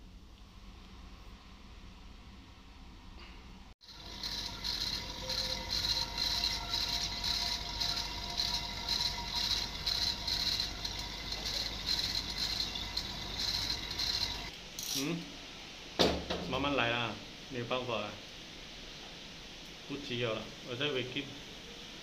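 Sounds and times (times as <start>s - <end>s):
vacuum pump humming with rhythmic hiss: 3.8s - 14.6s.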